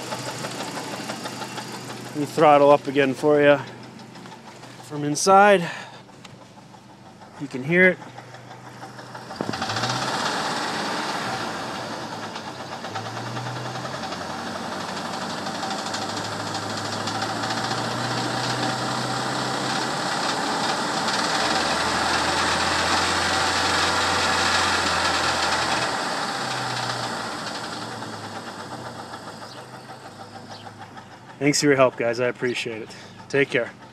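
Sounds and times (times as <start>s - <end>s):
engine knocking: 0.0s - 33.9s
car engine revving: 7.2s - 30.9s.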